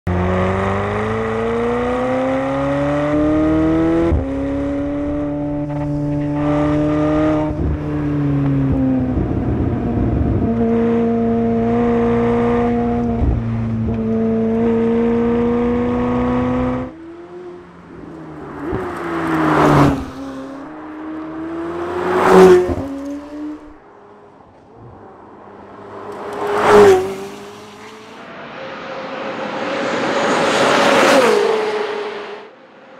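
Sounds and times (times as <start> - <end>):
sports car accelerating hard: 0.1 - 32.5
car passing by: 15.0 - 32.9.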